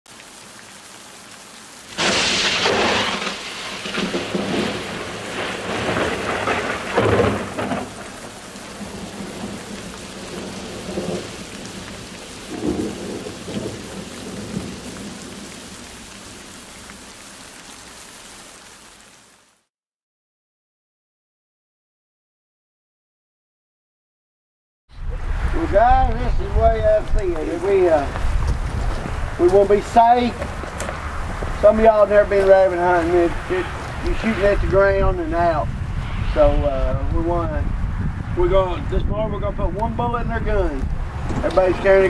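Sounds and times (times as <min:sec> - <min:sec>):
steady rain: 0:00.1 - 0:19.7, 0:25.0 - 0:42.0
thunder rumbling: 0:01.9 - 0:16.7, 0:25.0 - 0:42.0.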